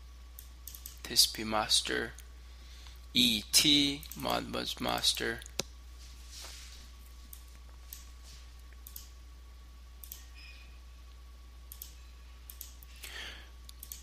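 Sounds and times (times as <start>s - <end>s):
faint electrical hum: 0.0s - 14.0s
computer mouse clicks: 0.4s - 1.0s, 8.7s - 9.1s, 10.0s - 10.3s, 11.7s - 12.9s, 13.7s - 14.0s.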